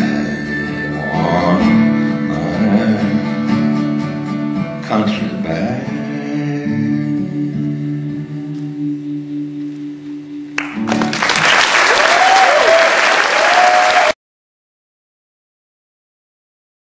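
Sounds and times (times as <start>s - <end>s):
acoustic guitar chord ringing: 0.0s - 11.3s
audience applause and cheering: 10.6s - 14.2s.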